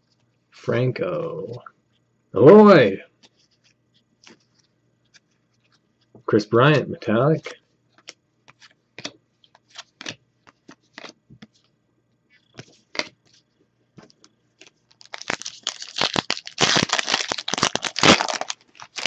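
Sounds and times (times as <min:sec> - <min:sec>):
trading cards being flicked: 0:08.0 - 0:11.6
foil wrapper tearing and crinkling: 0:14.6 - 0:19.0.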